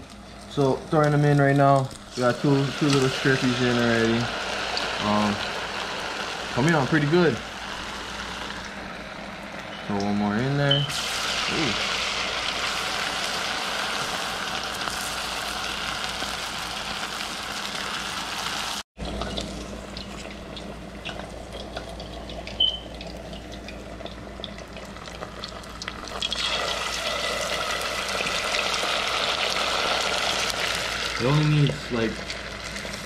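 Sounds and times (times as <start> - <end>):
fish deep-frying in oil: 0.0 - 33.0.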